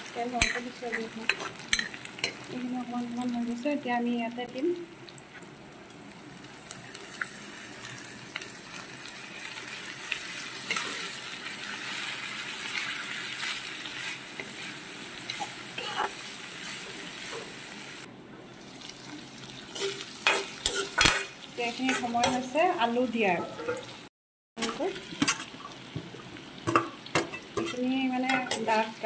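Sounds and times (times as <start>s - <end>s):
vegetables sizzling in hot oil: 0.0s - 29.0s
metal spatula scraping a pan: 19.7s - 22.6s, 27.2s - 28.9s.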